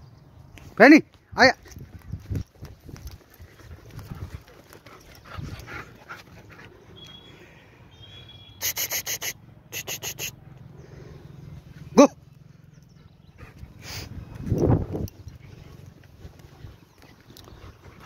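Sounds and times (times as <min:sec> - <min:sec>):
puppies panting and scuffling: 0:01.7 - 0:07.4, 0:12.5 - 0:18.0.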